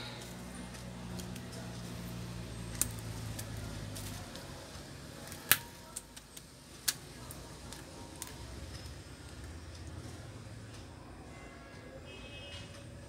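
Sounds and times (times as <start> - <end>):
rubber bands snapping: 2.7 - 4.5, 5.2 - 8.4.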